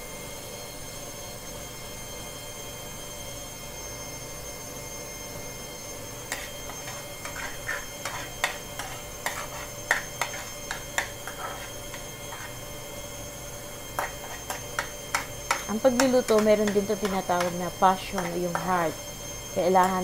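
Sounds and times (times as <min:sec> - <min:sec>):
background hum: 0:02.6 - 0:20.0
garlic frying in butter: 0:06.3 - 0:12.8, 0:13.6 - 0:20.0.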